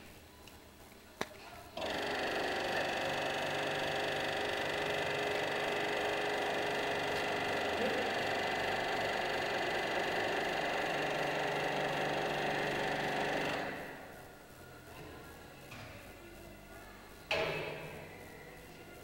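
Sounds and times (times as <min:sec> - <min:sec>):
kneading machine whirring: 0:01.7 - 0:15.1.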